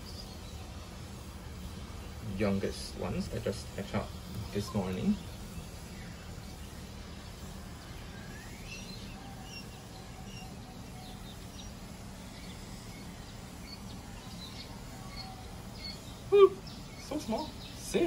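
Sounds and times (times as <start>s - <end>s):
low background hum: 0.0s - 18.0s
quail chicks peeping: 3.8s - 18.0s.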